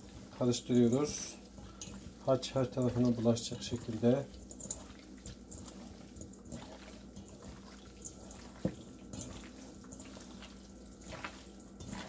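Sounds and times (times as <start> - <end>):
wet squelching of meat: 0.0 - 12.0.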